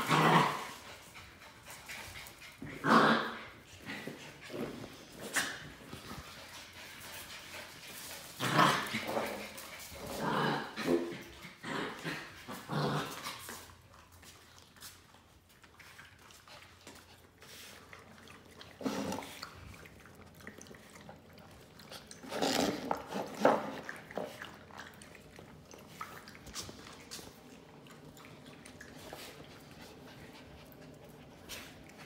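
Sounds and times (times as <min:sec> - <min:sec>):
puppy lapping water: 0:10.7 - 0:32.0.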